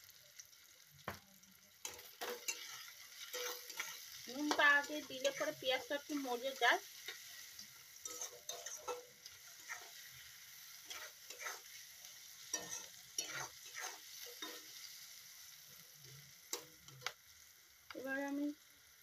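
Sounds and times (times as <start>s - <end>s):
vegetables sizzling in oil: 0.0s - 19.0s
wooden spatula scraping wok: 1.9s - 7.4s, 8.0s - 14.8s.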